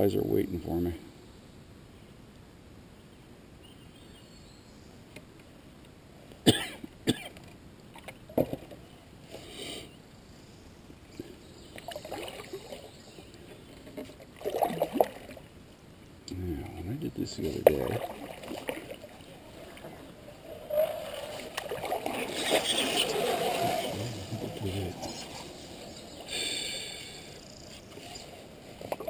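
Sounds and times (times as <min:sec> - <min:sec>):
paddle strokes in water: 0:17.6 - 0:26.3.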